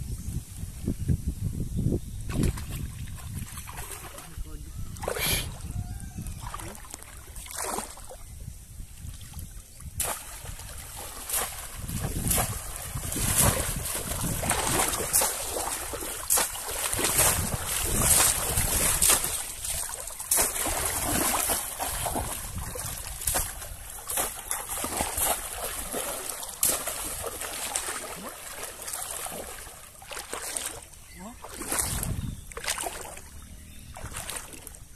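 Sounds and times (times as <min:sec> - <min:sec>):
wading through pond water: 0:02.2 - 0:34.9
fish trap plunging splashes: 0:02.3 - 0:04.3, 0:06.4 - 0:08.1, 0:10.0 - 0:33.2
churned water wash: 0:10.2 - 0:33.2.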